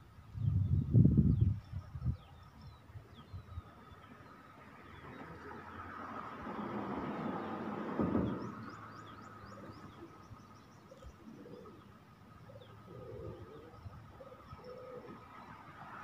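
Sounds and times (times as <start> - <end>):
small birds chirping: 0.2 - 15.6
dove cooing: 10.9 - 15.5.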